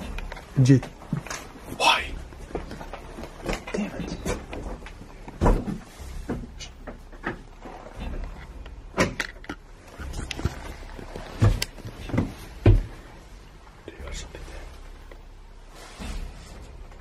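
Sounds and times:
footstep knocks and thumps: 0.0 - 9.2, 10.0 - 13.2.

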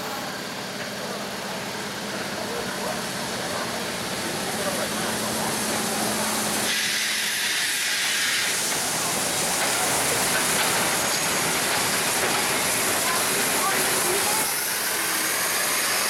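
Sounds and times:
steam locomotive rolling: 0.0 - 16.0
hiss of escaping steam: 3.0 - 16.0.

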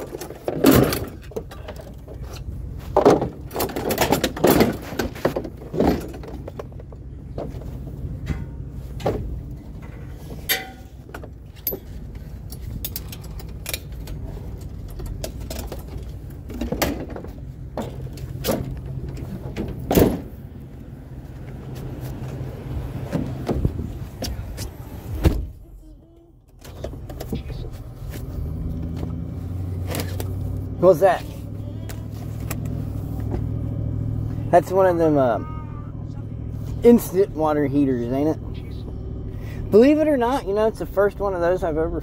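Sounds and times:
knocks and clunks: 0.0 - 25.8, 26.5 - 30.5
vehicle engine running: 0.0 - 42.0.

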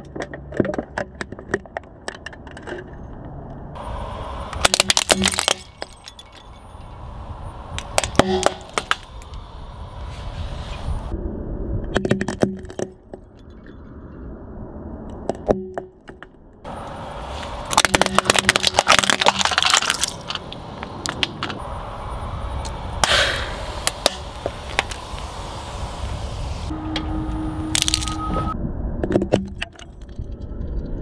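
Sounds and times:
plastic cracking under car tyre: 4.6 - 5.8, 17.6 - 21.6.

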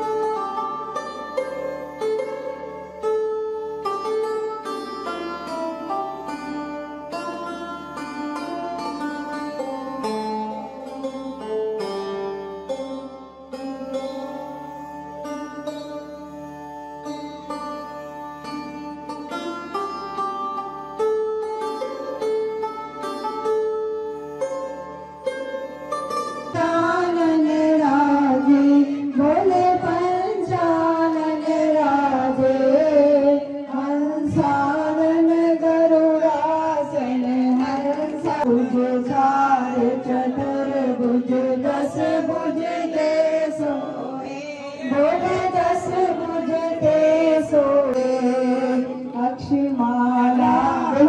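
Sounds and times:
plucked-string music: 0.0 - 51.0
person singing devotional melody: 26.4 - 51.0.

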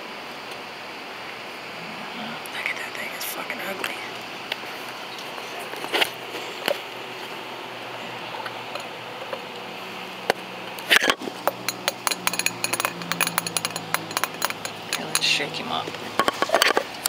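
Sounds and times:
clatter: 10.9 - 15.3.

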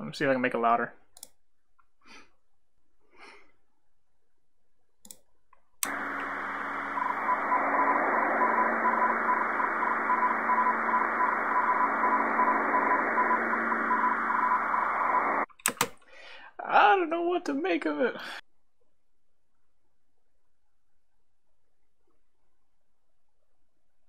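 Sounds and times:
faint clicks: 5.0 - 7.2
morse code beeps: 5.9 - 15.4
radio static: 5.9 - 15.5.

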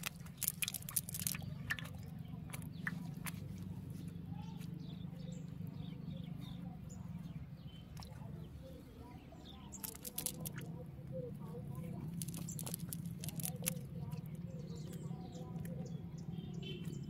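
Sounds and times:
wet fishing net rustling: 0.0 - 2.0, 9.8 - 10.7, 12.1 - 13.8
sharp clicks: 9.8 - 10.7, 12.1 - 13.8.

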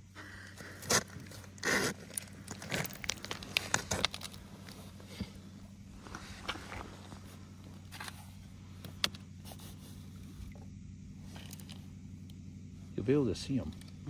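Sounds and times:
ice crunching and crackling: 0.2 - 8.8, 11.3 - 11.9.

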